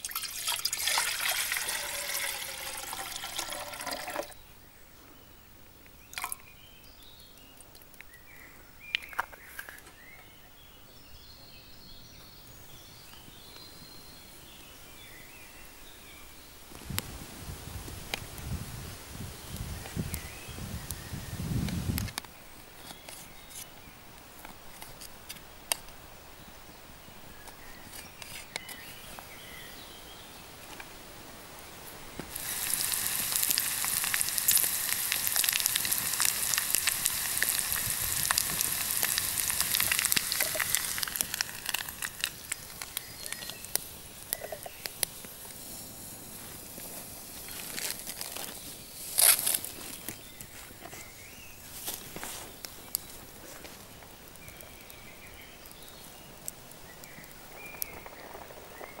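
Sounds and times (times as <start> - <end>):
campfire crackling and popping: 0.0 - 4.3, 31.6 - 50.8, 51.6 - 59.0
bacon sizzling in a pan: 32.3 - 48.2.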